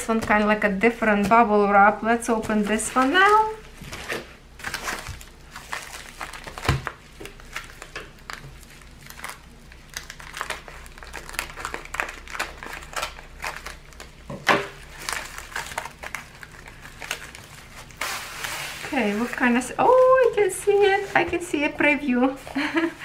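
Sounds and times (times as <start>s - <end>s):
plastic packaging crinkling: 2.2s - 23.0s
scissors cutting plastic: 6.4s - 17.4s.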